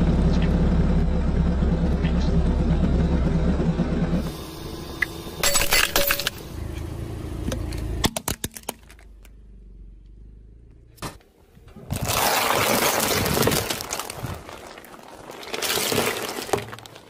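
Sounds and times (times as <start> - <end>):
low car engine rumble: 0.0 - 11.9
hard plastic cracking under tyre: 7.7 - 9.3, 11.1 - 17.0.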